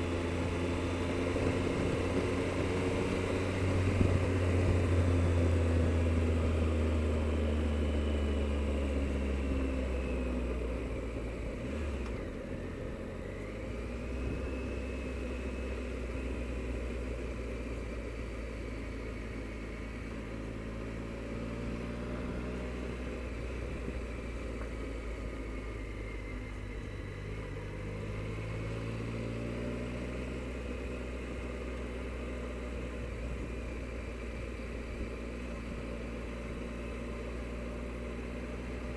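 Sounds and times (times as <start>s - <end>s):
low wind rumble: 0.0s - 6.5s
motorcycle engine: 0.0s - 38.9s.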